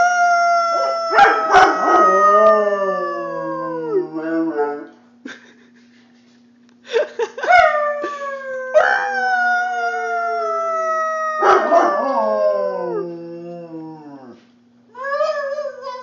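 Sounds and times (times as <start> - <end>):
dog howling: 0.0 - 4.9, 8.7 - 14.4.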